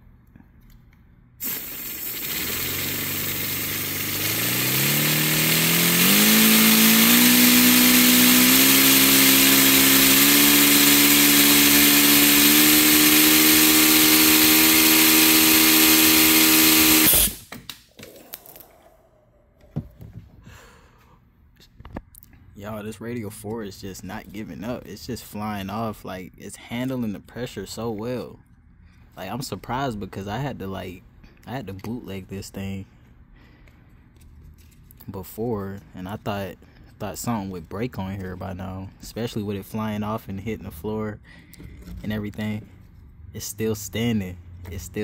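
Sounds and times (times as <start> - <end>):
compressed air rushing: 1.4 - 17.5.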